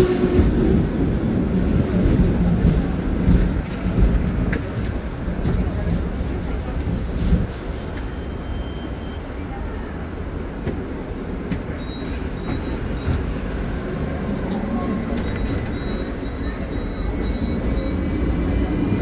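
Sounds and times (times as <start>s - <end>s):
tram wheels rumbling on track: 0.0s - 19.0s.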